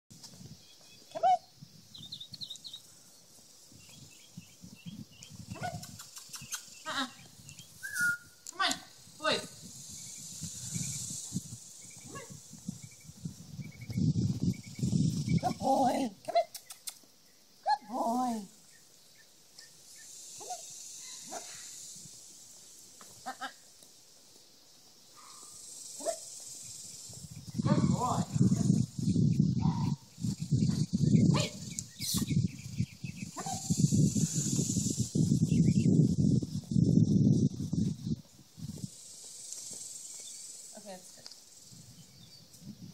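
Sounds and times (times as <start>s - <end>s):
small birds chirping: 0.4s - 42.8s
soft low steps: 7.2s - 15.6s.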